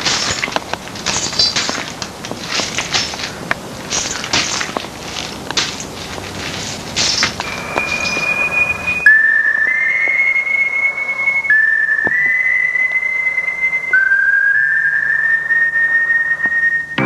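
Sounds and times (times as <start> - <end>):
high whistling tone: 7.1 - 17.0.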